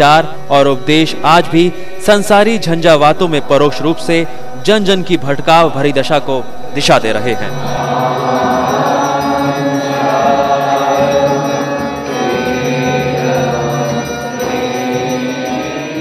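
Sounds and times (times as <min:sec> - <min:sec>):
devotional chanting: 0:00.0 - 0:16.0
low steady drone: 0:00.0 - 0:16.0.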